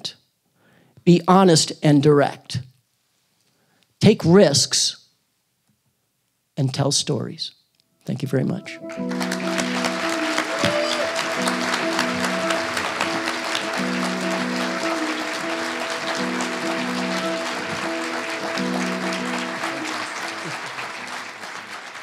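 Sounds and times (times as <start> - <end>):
music with held chords: 8.6 - 22.0
audience applauding: 8.9 - 22.0.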